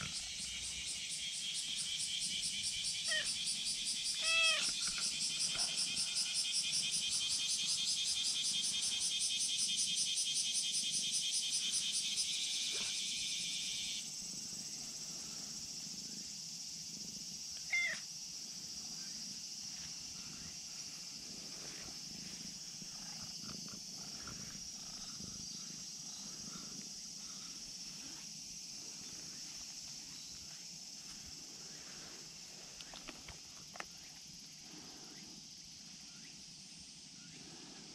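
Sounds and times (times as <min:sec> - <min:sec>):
insects buzzing: 0:00.0 - 0:37.9
cat meowing: 0:04.2 - 0:04.7, 0:17.7 - 0:18.0.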